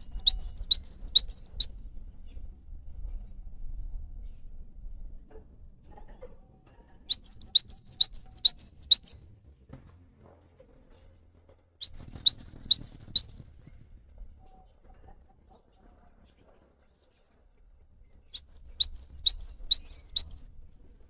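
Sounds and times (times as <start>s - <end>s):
bird singing sharp notes: 0.0s - 1.7s, 7.1s - 9.2s, 11.8s - 13.4s, 18.4s - 20.4s.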